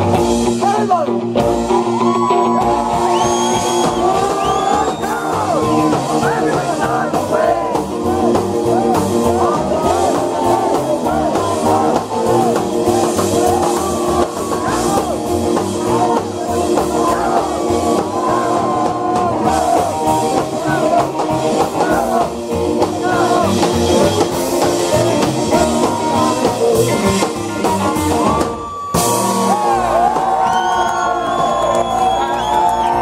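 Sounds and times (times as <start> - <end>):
live rock and roll band: 0.0 - 33.0
crowd cheering and whooping: 1.4 - 26.6, 27.6 - 33.0
man singing: 3.3 - 28.3.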